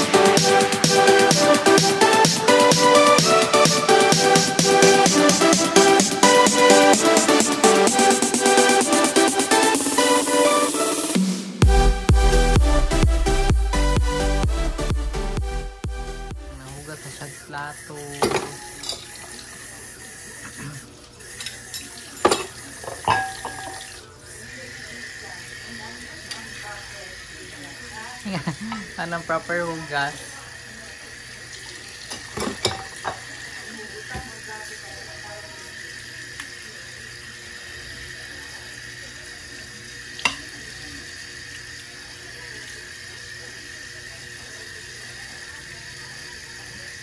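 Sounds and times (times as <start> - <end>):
tap water running: 0.0 - 11.2, 16.5 - 47.0
running water and scrubbing: 16.6 - 36.6
crockery clinking: 18.2 - 19.2, 21.4 - 24.0, 32.1 - 33.3, 40.2 - 40.5.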